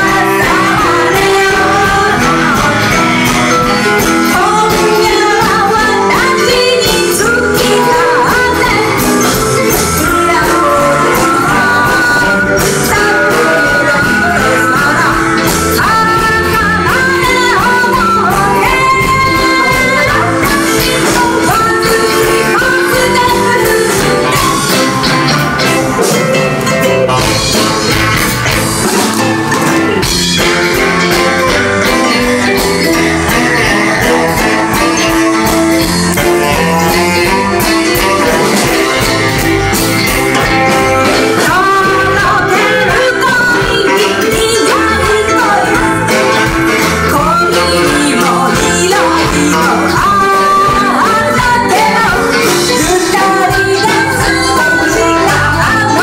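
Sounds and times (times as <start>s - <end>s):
female vocal group singing: 0.0s - 2.8s, 4.3s - 24.6s, 41.2s - 46.1s, 47.0s - 56.0s
drums: 0.0s - 56.0s
electric guitar: 0.0s - 56.0s.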